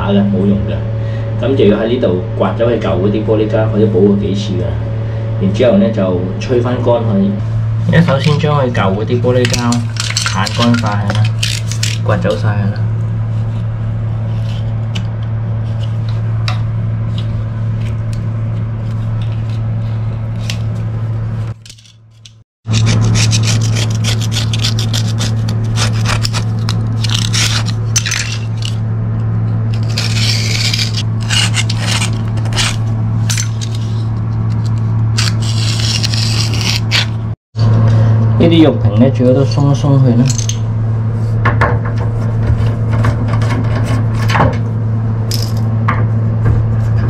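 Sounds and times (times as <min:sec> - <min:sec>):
steady low hum: 0:00.0 - 0:47.0
sealant scraping off marble: 0:22.7 - 0:28.8, 0:29.7 - 0:37.2.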